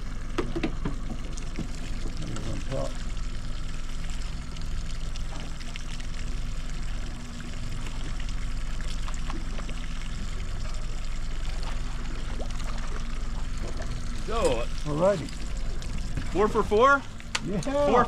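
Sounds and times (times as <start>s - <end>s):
boat motor humming: 0.0s - 18.0s
water sloshing along boat hull: 6.8s - 17.8s.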